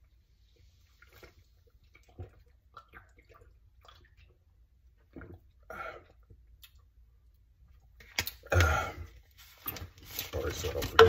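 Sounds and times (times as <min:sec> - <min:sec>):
man gulping from bottle: 0:05.0 - 0:06.9, 0:08.3 - 0:09.3.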